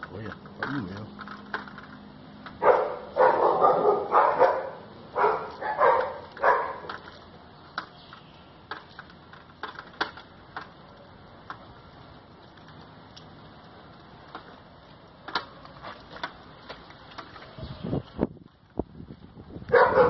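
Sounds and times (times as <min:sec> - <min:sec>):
dog barking: 0:02.6 - 0:06.9, 0:19.7 - 0:20.0
faint clicks: 0:12.4 - 0:17.5.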